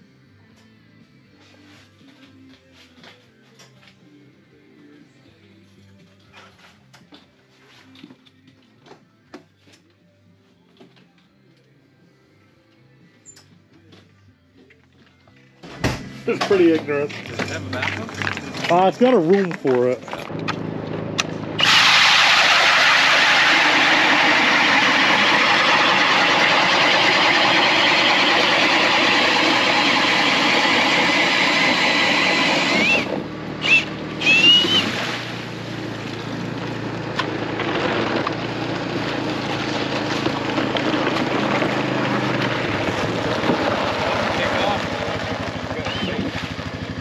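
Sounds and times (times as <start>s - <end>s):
atv engine at low speed: 16.4s - 47.0s
ice auger grinding: 17.2s - 18.9s, 20.4s - 47.0s
short high squeals: 21.6s - 35.2s.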